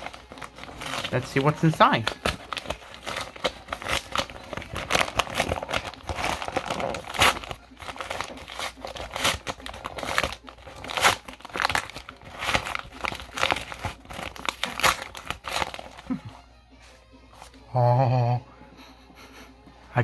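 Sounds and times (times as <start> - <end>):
packaging crinkling: 0.0 - 16.3.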